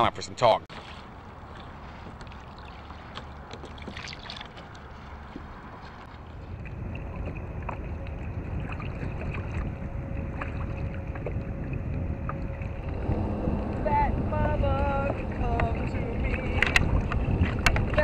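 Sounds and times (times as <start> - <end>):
waves lapping against kayak hull: 0.6 - 18.0
small water splashes: 0.7 - 9.7
heavy low rumble: 5.6 - 18.0.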